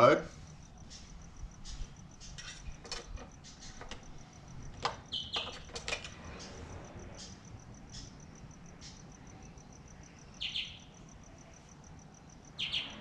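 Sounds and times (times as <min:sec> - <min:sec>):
insect chirping rapidly: 0:00.0 - 0:13.0
clicks and rustles of handling: 0:02.2 - 0:06.6.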